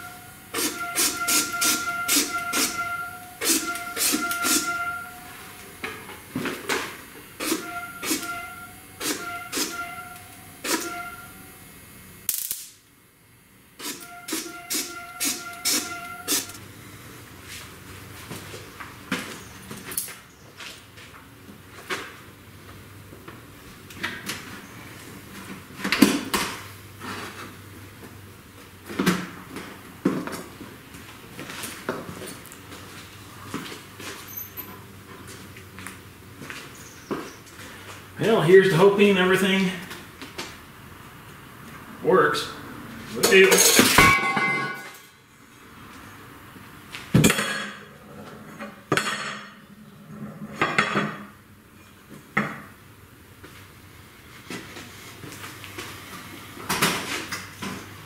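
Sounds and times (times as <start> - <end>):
thin sheet metal clanking: 43.2 - 45.1.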